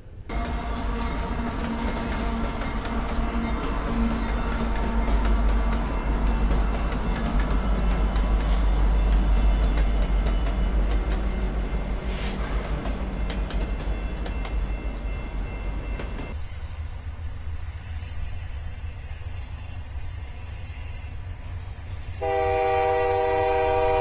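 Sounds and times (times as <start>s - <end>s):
train engine and wheel rumble: 0.0s - 24.0s
thin high squeal: 6.7s - 12.6s.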